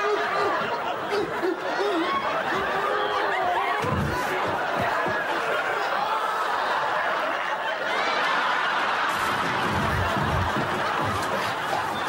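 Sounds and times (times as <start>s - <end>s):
studio audience laughing: 0.0s - 12.0s
dull thumps from scuffle: 3.8s - 5.3s, 9.1s - 12.0s.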